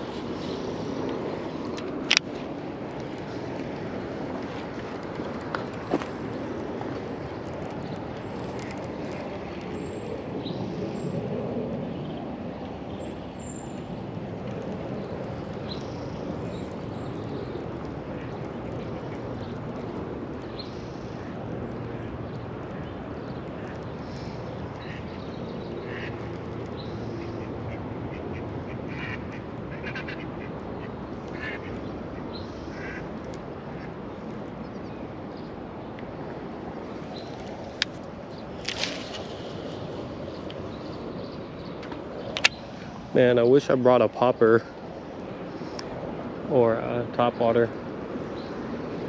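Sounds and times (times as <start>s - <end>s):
ducks quacking: 25.8s - 26.2s, 27.2s - 31.8s, 32.7s - 33.1s.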